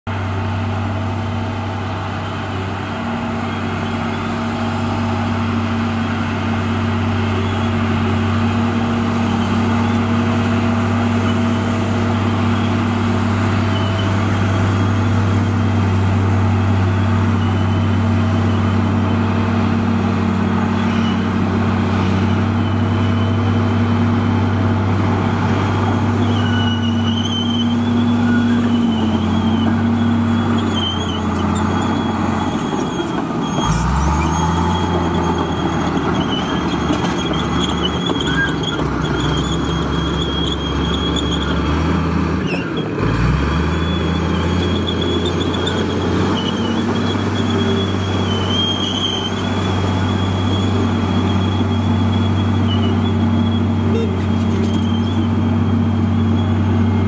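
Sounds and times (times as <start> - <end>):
bulldozer diesel engine: 0.1 - 57.0
faint high squeal: 20.7 - 21.3, 25.9 - 41.8, 43.6 - 57.0.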